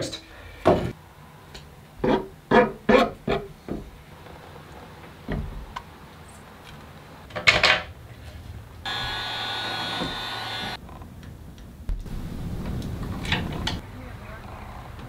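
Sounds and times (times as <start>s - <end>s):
cordless drill drilling: 8.9s - 10.8s.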